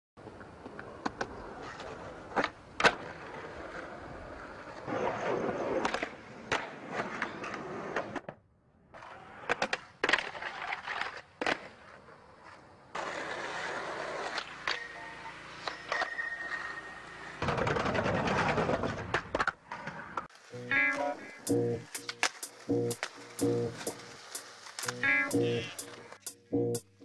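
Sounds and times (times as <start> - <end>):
skateboard wheels rolling on pavement: 0.2 - 25.3
skateboard wooden clacks: 9.0 - 15.0, 22.0 - 22.4.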